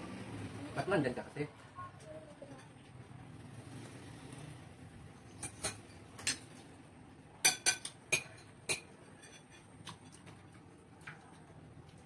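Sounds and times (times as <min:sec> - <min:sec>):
cutlery clinking on plates: 0:05.3 - 0:06.6, 0:07.4 - 0:10.4.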